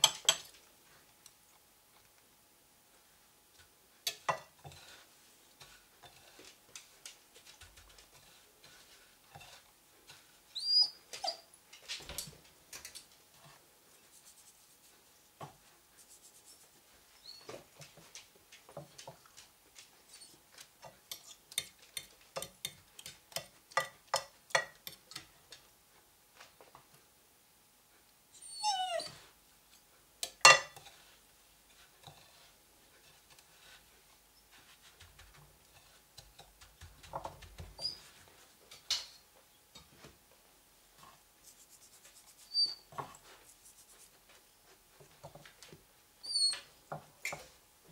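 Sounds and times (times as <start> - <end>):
fork tapping: 0.0 - 0.5, 21.1 - 25.3
fork clinking and scraping on plates: 0.0 - 0.6, 30.2 - 31.0
short high squeaks: 42.5 - 42.9.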